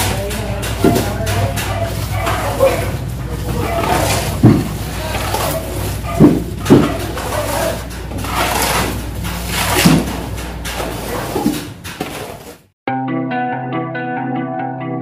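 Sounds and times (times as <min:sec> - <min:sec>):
shovel scraping wet mortar: 0:00.0 - 0:12.6
dull knocks: 0:03.6 - 0:07.4.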